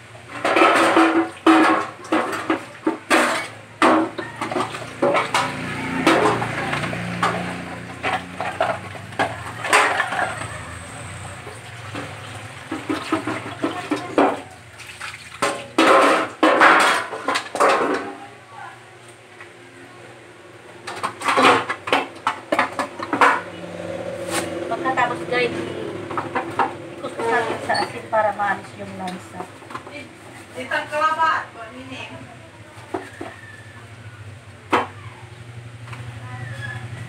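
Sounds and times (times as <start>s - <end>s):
metal tray clanking against sink: 0.4s - 10.8s, 15.4s - 18.1s
water splashing and running: 4.4s - 16.3s.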